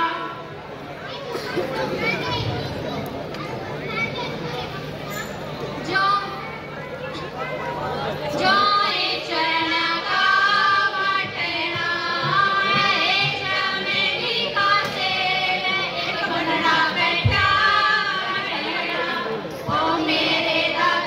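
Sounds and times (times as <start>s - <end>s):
women singing through microphones: 8.3s - 21.0s.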